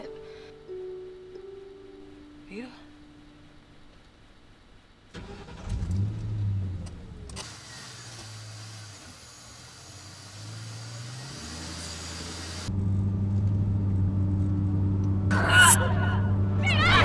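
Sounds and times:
car engine starting and idling: 5.1 - 17.0.

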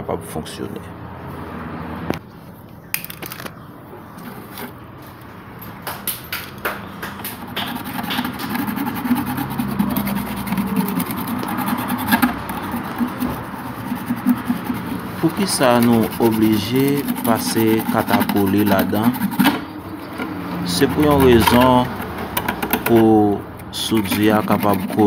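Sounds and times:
scraping metal tube: 7.2 - 25.0.

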